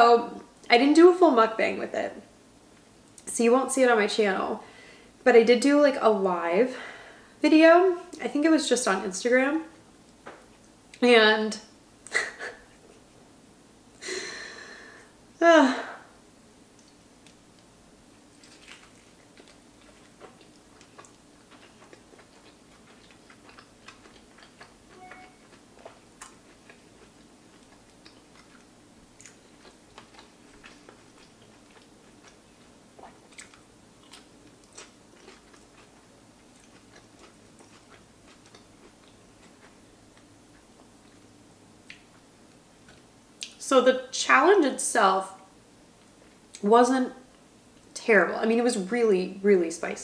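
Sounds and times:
person chewing food: 16.7 - 43.5.

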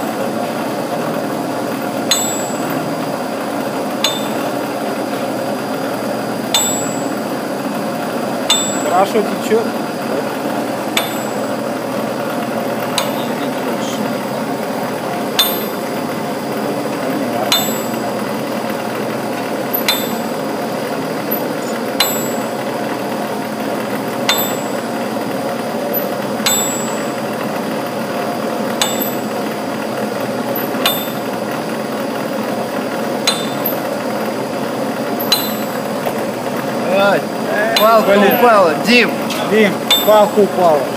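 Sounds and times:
steady mechanical noise: 0.0 - 40.9
sharp metallic knock: 2.1 - 2.9, 4.0 - 4.6, 6.5 - 7.3, 8.5 - 9.3, 11.0 - 11.5, 13.0 - 13.6, 15.4 - 16.0, 17.5 - 18.2, 19.7 - 20.4, 22.0 - 22.7, 24.3 - 24.9, 26.4 - 27.3, 28.8 - 29.4, 30.6 - 31.4, 33.2 - 33.9, 35.2 - 35.9, 39.9 - 40.4.

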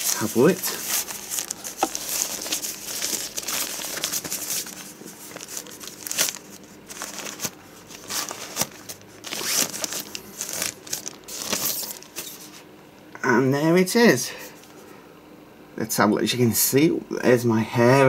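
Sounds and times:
plastic sleeve crinkling: 0.0 - 12.6.

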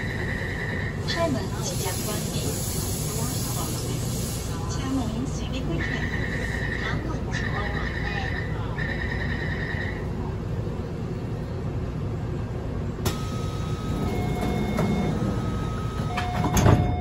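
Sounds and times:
train humming: 0.0 - 17.0
door warning beeps: 13.1 - 17.0
sliding doors thudding shut: 13.1 - 17.0.

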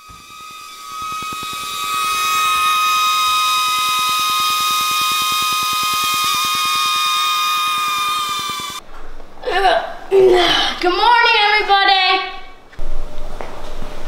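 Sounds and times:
drone motors whining: 0.0 - 8.8.

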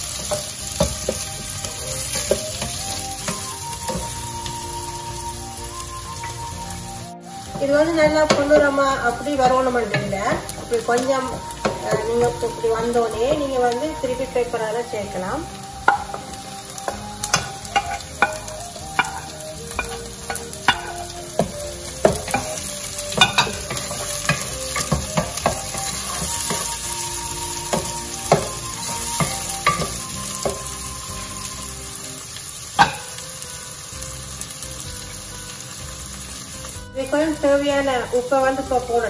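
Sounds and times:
vegetables sizzling in oil: 0.0 - 39.0
wooden spoon scraping and knocking pan: 7.5 - 13.8, 15.8 - 30.8.

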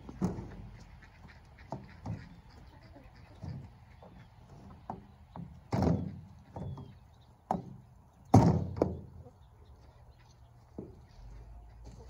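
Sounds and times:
wheelbarrow knocks and thumps: 4.9 - 6.9, 7.5 - 9.2.

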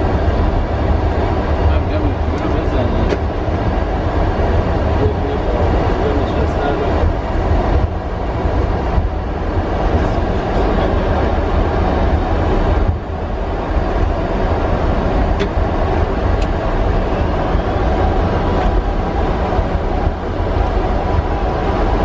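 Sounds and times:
aircraft cockpit engine rumble: 0.0 - 22.0.

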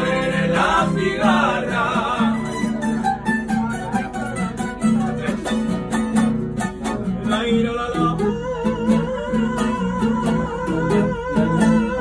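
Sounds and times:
acoustic guitars strummed: 0.0 - 12.0
lute picking melody: 0.0 - 12.0.

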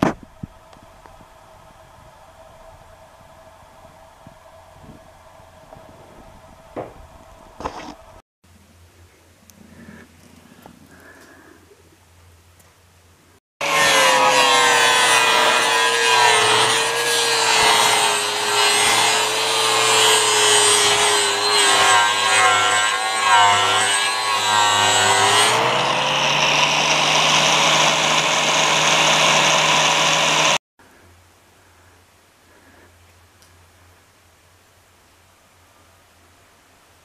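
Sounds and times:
angle grinder grinding wood: 0.0 - 8.2, 13.6 - 30.6.

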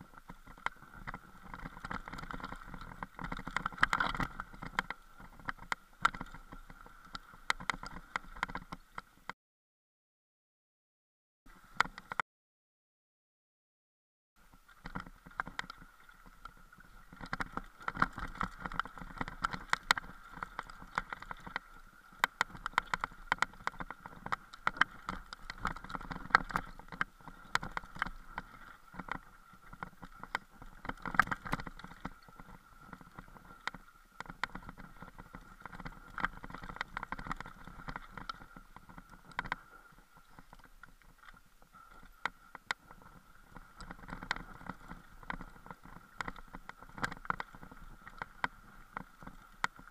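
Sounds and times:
camera rattling and knocking: 17.1 - 39.6.

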